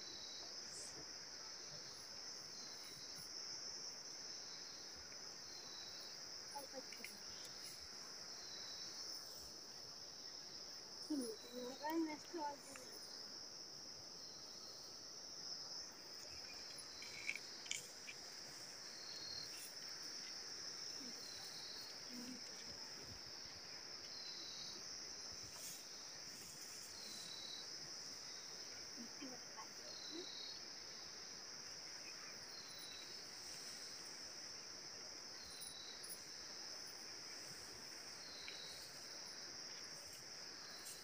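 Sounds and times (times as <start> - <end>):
falling insect chirp: 0.0 - 41.0
high-pitched insect chorus: 0.0 - 41.0
faint clicks: 16.6 - 18.2.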